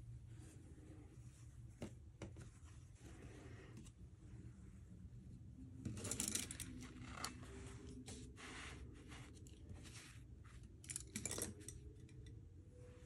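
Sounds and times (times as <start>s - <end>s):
brush handles clicking and clattering: 5.9s - 7.4s, 10.7s - 12.4s.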